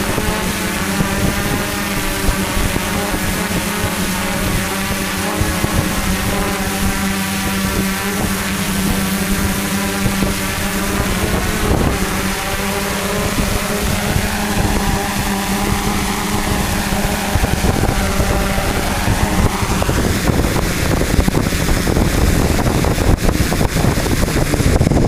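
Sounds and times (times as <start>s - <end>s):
drone propellers buzzing: 0.0s - 25.0s
wind buffeting microphone: 0.0s - 25.0s.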